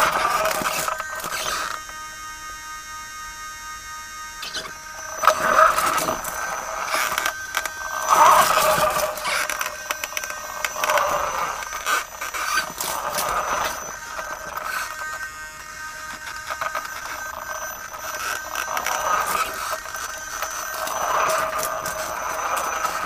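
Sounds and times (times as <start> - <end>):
drive motor whining: 0.0 - 23.0
tyres crunching on gravel: 5.0 - 15.3, 16.1 - 23.0.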